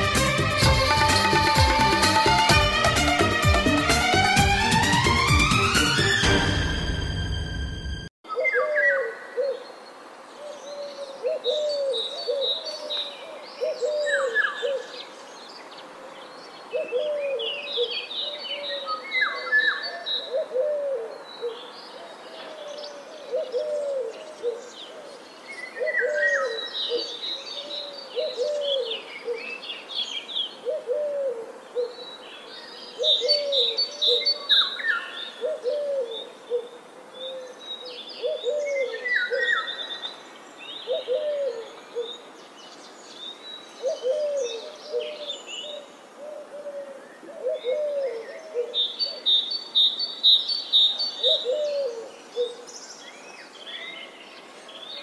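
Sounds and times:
birds chirping and twittering: 0:31.6 - 0:55.0
low hooting bird call: 0:32.9 - 0:40.0, 0:40.8 - 0:42.2, 0:50.8 - 0:52.7.

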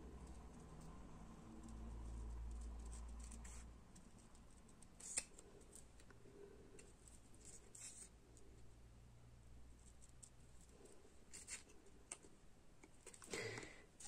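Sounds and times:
small scissors snipping paper: 0:00.2 - 0:06.1.

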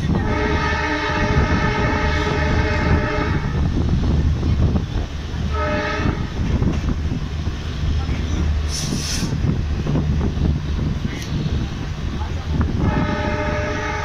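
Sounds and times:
train rumbling along track: 0:00.0 - 0:14.0
locomotive horn blasts: 0:00.1 - 0:03.7, 0:05.5 - 0:06.4, 0:12.8 - 0:14.0.

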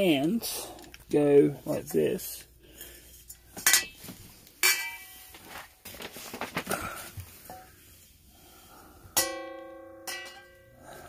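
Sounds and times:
metal pots clanking: 0:03.6 - 0:05.3, 0:09.2 - 0:10.7.

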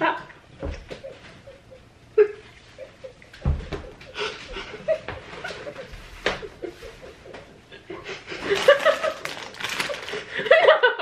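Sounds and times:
man and woman laughing: 0:00.6 - 0:11.0.

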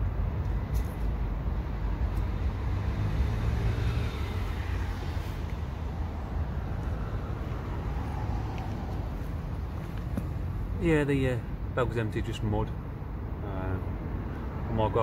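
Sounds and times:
road traffic rumble: 0:00.0 - 0:15.0
vehicle passing by: 0:01.8 - 0:10.8.

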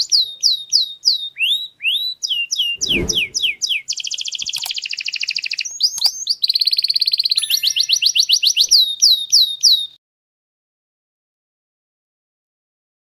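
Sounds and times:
canary singing: 0:00.0 - 0:10.0.

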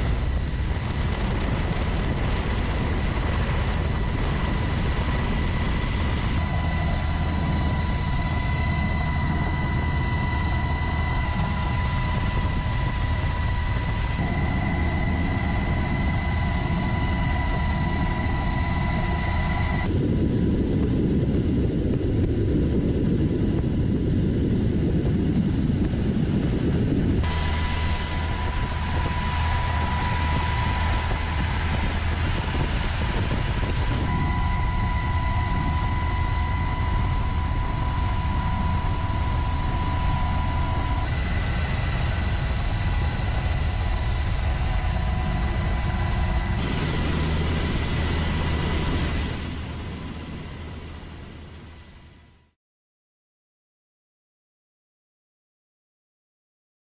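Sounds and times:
helicopter engines and rotors rumble: 0:00.0 - 0:52.4
steady high whine: 0:00.0 - 0:52.6.

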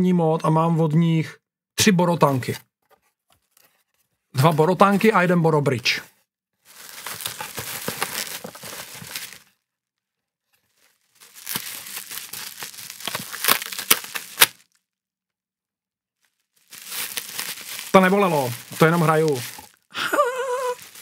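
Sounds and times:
packaging crinkling and tearing: 0:06.6 - 0:09.5, 0:10.6 - 0:14.8, 0:16.2 - 0:21.0.

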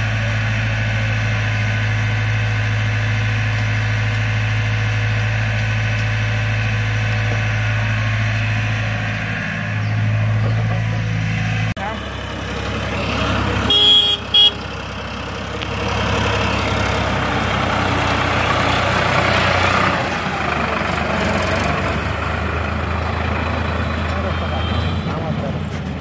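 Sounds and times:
tractor diesel engine running: 0:00.0 - 0:26.0
horn toots: 0:13.6 - 0:14.6.

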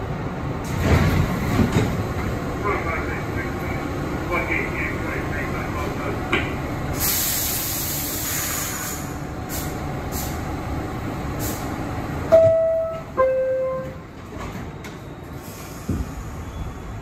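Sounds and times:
subway car rumble: 0:00.0 - 0:17.0
high hiss of air: 0:07.0 - 0:10.4.

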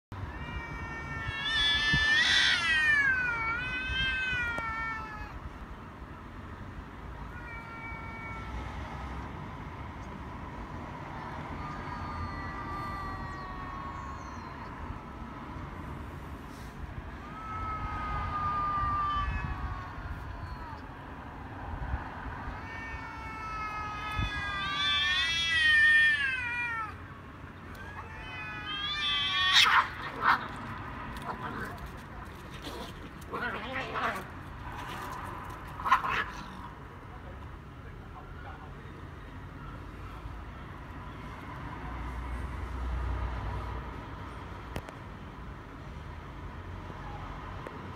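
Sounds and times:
cat yowling: 0:00.3 - 0:05.4, 0:07.2 - 0:08.7, 0:11.6 - 0:15.2, 0:17.1 - 0:21.0, 0:22.5 - 0:27.0, 0:27.7 - 0:30.6
faint cat yowl: 0:07.2 - 0:08.8, 0:11.6 - 0:15.2, 0:17.1 - 0:21.0, 0:22.4 - 0:27.0, 0:27.7 - 0:30.4.

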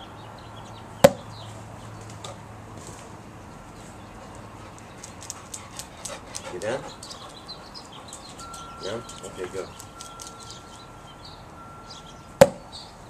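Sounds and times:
ball bouncing off ground: 0:01.0 - 0:01.2, 0:12.4 - 0:12.6.

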